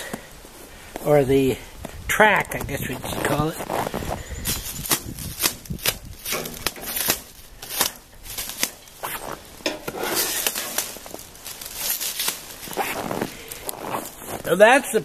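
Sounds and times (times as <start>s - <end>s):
plastic wrap crinkling: 2.6s - 14.6s.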